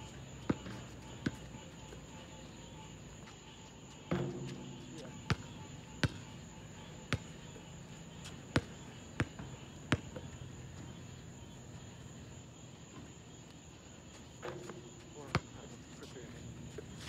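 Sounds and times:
insects trilling: 0.0 - 17.0
basketball bouncing on asphalt: 0.3 - 11.6, 14.5 - 15.5.

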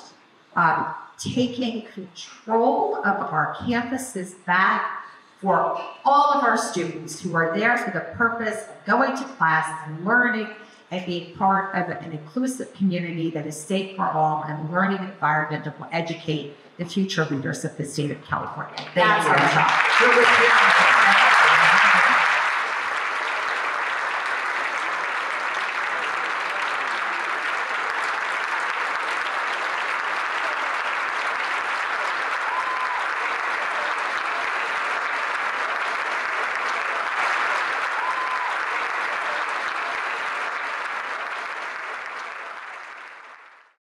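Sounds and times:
audience applauding: 18.9 - 43.8.

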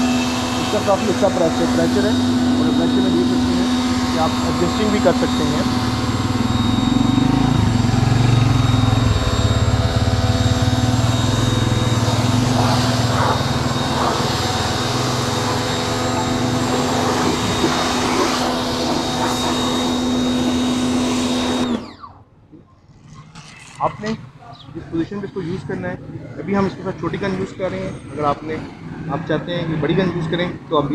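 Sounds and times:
pressure washer motor hum: 0.0 - 22.2
high-pressure spray hissing: 11.7 - 21.6.

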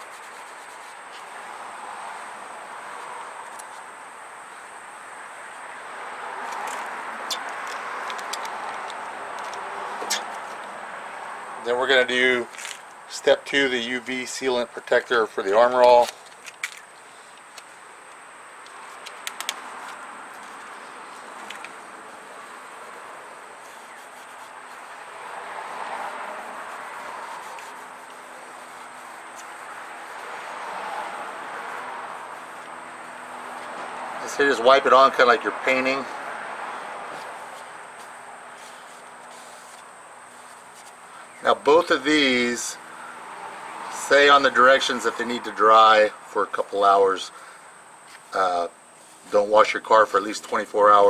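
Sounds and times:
outdoor background hiss: 0.0 - 51.0
steady rushing noise: 18.6 - 42.6.

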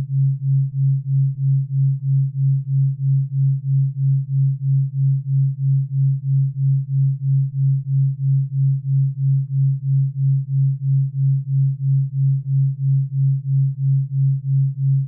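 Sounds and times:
pulsing electronic sine tone: 0.0 - 15.0.

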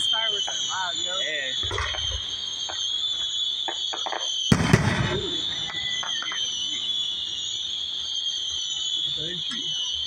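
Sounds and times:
fireworks exploding: 0.0 - 10.0.

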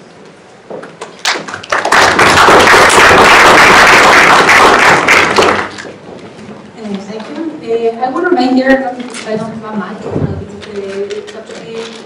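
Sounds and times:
audience applauding: 1.2 - 6.0.

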